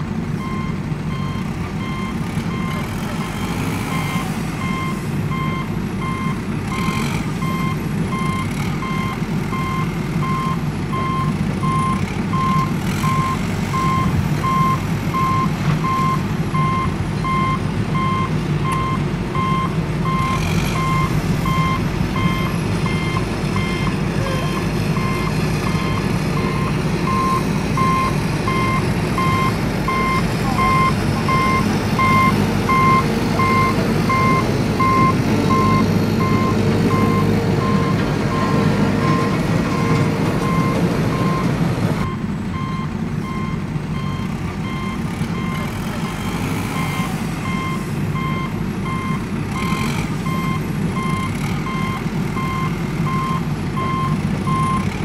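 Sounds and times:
reversing alarm beeping: 0.4s - 54.9s
low engine rumble: 7.4s - 46.2s.

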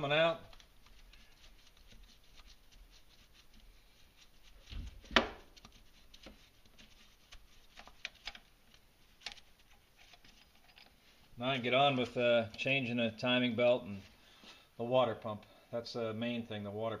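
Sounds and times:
faint rubbing: 0.0s - 12.3s.

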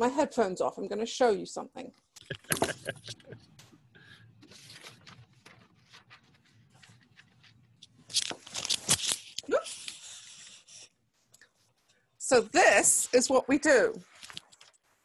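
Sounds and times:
headphones rustling and clicking: 2.2s - 12.0s, 14.0s - 15.0s.

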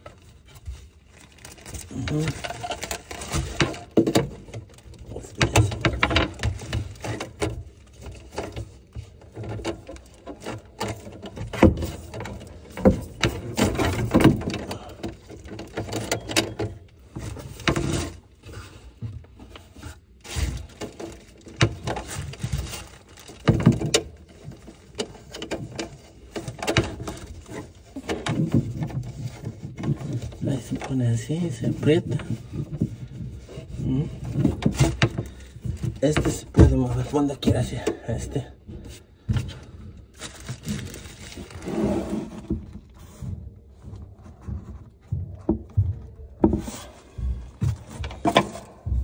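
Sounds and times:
plastic sheet rustling: 0.0s - 45.2s
plastic pipe knocks and clicks: 43.9s - 49.0s.

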